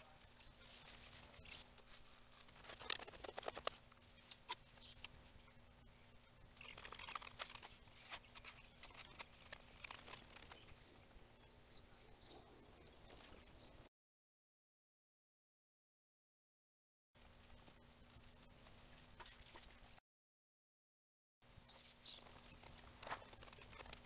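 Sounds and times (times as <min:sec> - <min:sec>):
sharp clicks and crinkles: 0:00.2 - 0:05.2, 0:06.6 - 0:10.8, 0:22.2 - 0:24.0.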